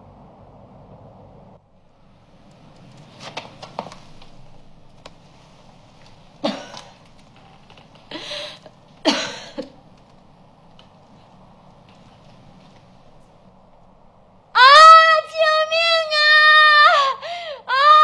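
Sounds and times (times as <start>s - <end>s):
woman sobbing: 14.6s - 18.0s.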